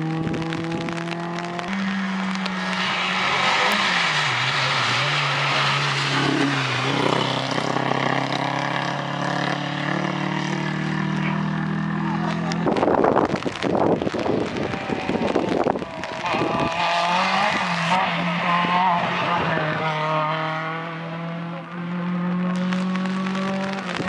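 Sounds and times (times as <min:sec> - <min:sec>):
rally car engine at full throttle: 0:00.0 - 0:24.0
loud choppy noise: 0:00.1 - 0:09.0, 0:12.2 - 0:19.0.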